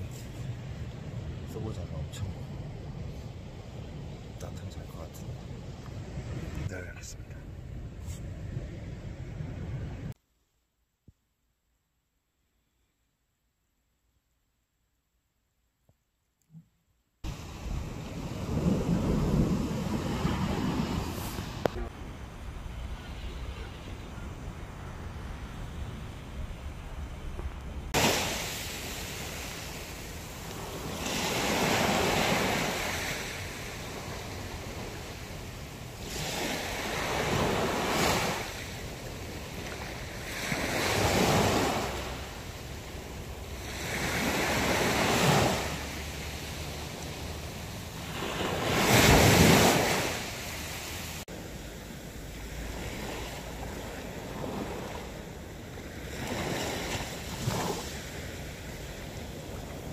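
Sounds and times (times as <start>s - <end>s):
small waves breaking on beach: 17.2s - 59.9s.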